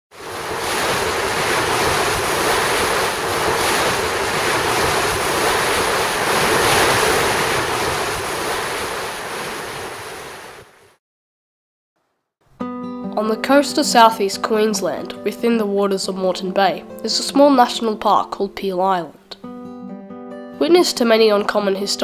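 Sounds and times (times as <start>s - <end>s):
choppy water washing: 0.1s - 11.0s
wind buffeting microphone: 0.2s - 10.6s.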